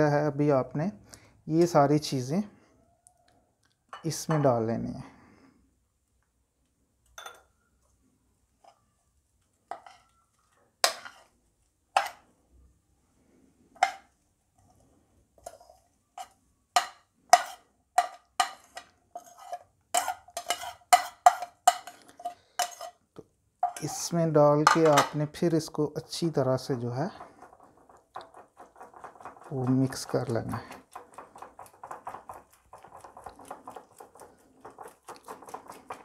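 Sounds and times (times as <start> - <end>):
metal spoon tapping ceramic plate: 16.8 - 18.8.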